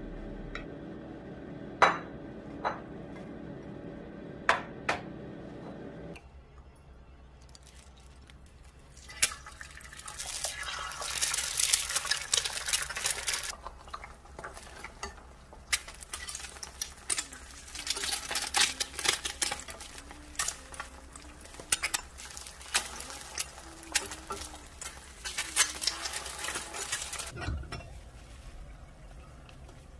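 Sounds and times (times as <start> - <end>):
eggs sizzling in a pan: 7.6 - 29.9
metal turner scraping a pan: 15.8 - 27.9.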